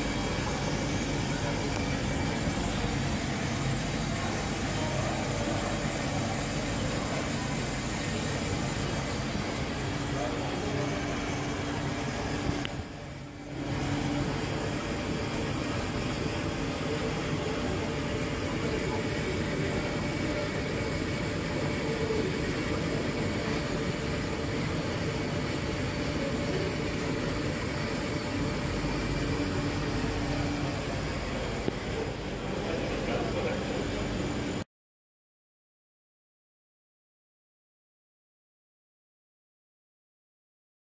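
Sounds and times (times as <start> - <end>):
faint machine hum: 0.0 - 34.6.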